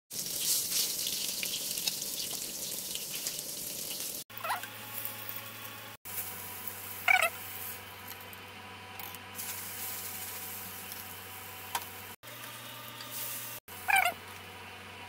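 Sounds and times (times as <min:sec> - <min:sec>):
oil sizzling in frying pan: 0:00.1 - 0:05.5, 0:06.1 - 0:08.0, 0:09.4 - 0:12.2.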